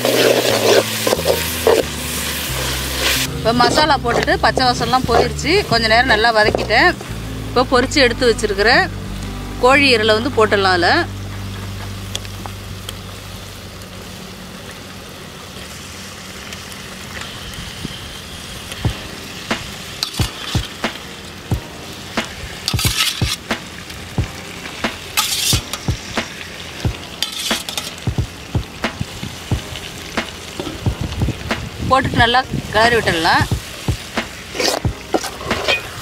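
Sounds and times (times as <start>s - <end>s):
metal ladle scraping and clinking: 0.0s - 5.4s, 6.4s - 6.8s, 20.0s - 20.8s, 22.6s - 23.5s, 25.1s - 25.9s, 27.2s - 28.0s, 34.4s - 36.0s
sauce sizzling in metal pan: 0.0s - 36.0s.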